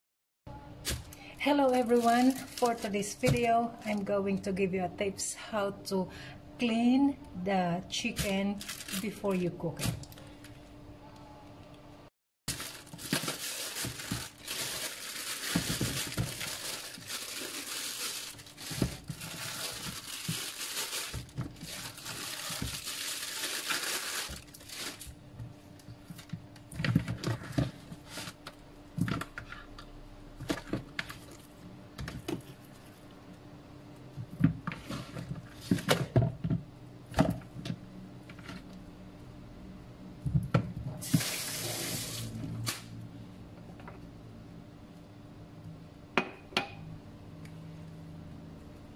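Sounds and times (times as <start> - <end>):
plastic bags crinkling: 0.9 - 4.5, 8.1 - 10.5, 12.5 - 25.2.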